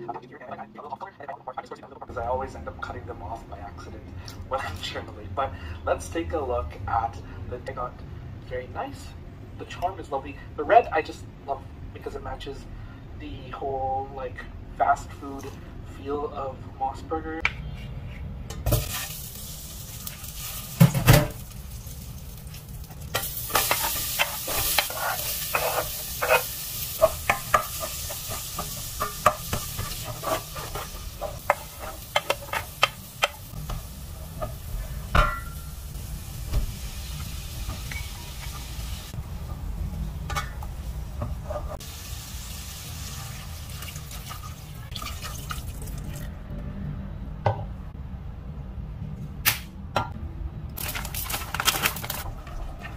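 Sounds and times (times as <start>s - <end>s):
vegetables sizzling in butter: 18.7s - 39.2s, 40.8s - 44.6s
spatula scraping a pot: 23.5s - 33.3s.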